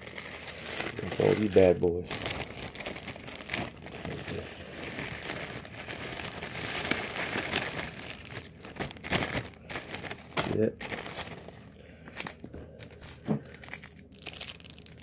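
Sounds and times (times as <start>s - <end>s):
crumbs rustling against plastic: 0.0s - 15.0s
plastic chip bag crinkling: 0.0s - 15.0s.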